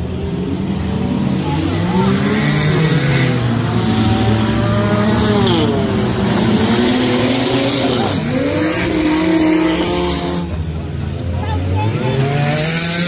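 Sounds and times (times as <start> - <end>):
race car engines: 0.0 - 13.0.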